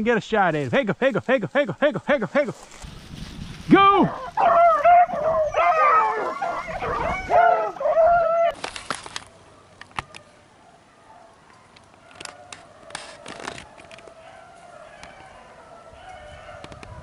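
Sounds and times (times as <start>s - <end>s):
rustling: 0.4s - 10.3s, 11.8s - 14.7s
dogs baying: 4.1s - 8.6s.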